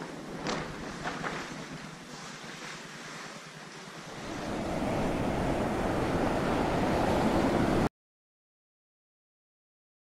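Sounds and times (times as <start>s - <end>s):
rushing sea: 0.0s - 7.9s
wind buffeting microphone: 4.0s - 7.9s.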